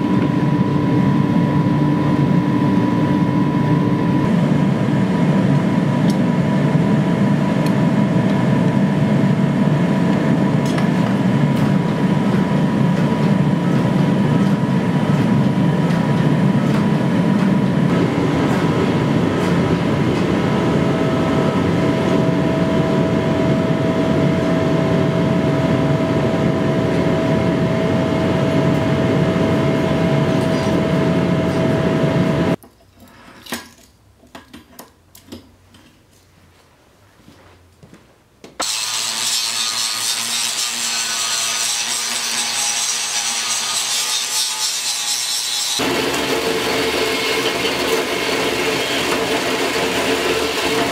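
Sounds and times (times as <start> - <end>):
gas forge burner roaring: 0.0 - 32.6, 45.8 - 50.9
power grinder grinding steel: 38.6 - 50.9.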